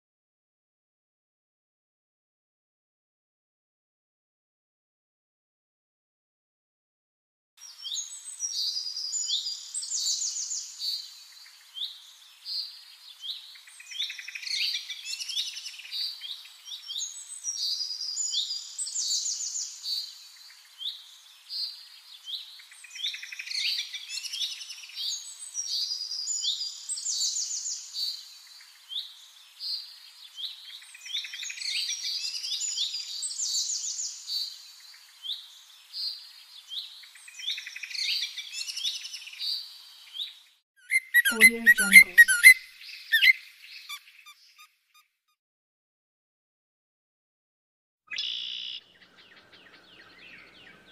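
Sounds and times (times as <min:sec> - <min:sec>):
songbirds chirping and singing: 0:48.1 - 0:50.9.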